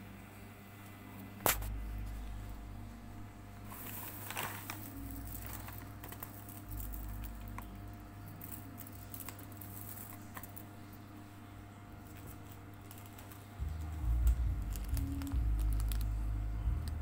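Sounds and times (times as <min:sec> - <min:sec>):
low hum: 0:00.0 - 0:17.0
plastic bag crinkling: 0:03.6 - 0:11.0, 0:12.0 - 0:16.3
fried shallots crackling: 0:03.7 - 0:10.8, 0:12.1 - 0:16.2.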